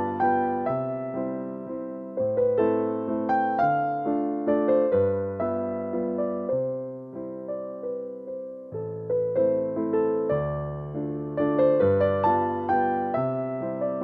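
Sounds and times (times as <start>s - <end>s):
electric piano melody: 0.0s - 14.0s.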